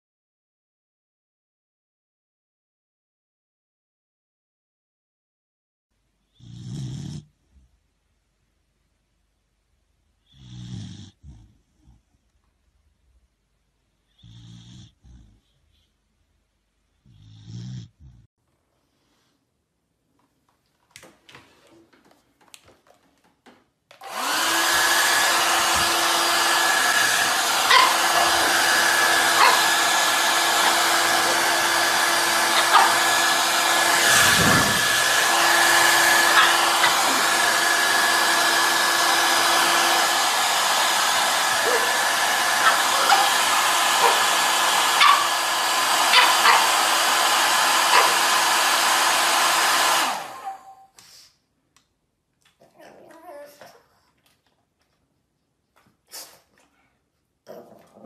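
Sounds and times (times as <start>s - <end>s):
hair dryer blowing: 23.9s - 50.9s
dog barking: 27.2s - 33.5s, 36.2s - 37.3s, 41.5s - 45.4s, 46.0s - 46.9s, 47.8s - 48.4s.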